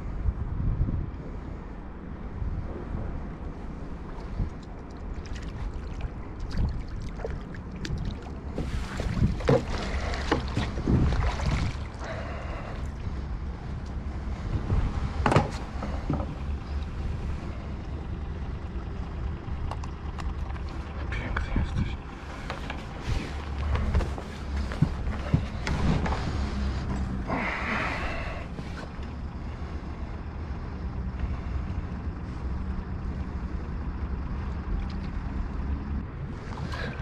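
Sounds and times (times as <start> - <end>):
low motor hum: 0.0 - 37.0
rustling and clattering: 8.5 - 11.6, 22.1 - 27.3.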